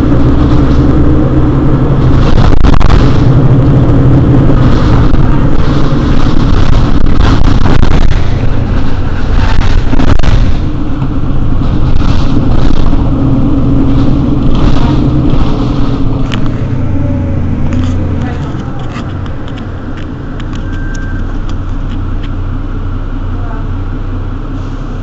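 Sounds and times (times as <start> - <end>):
bus engine running: 0.0 - 25.0.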